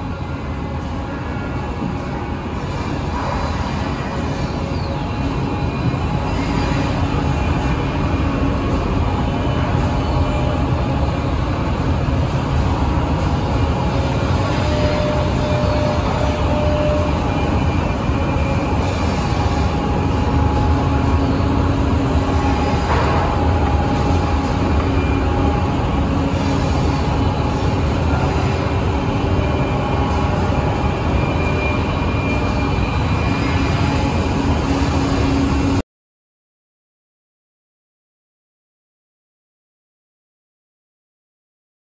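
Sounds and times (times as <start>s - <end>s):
woodworking machinery rumble: 0.2s - 35.4s
faint high whine: 13.6s - 35.8s.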